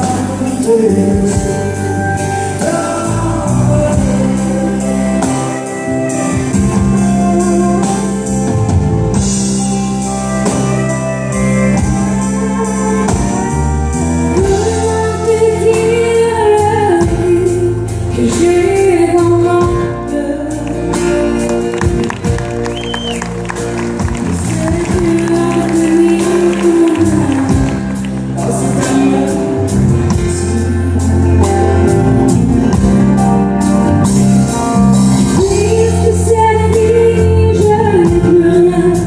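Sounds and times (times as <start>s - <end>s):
man singing: 0.0s - 8.7s, 24.2s - 32.3s
woman singing: 0.0s - 8.8s, 14.3s - 21.4s, 24.1s - 31.8s, 35.2s - 39.0s
country band playing: 0.0s - 39.0s.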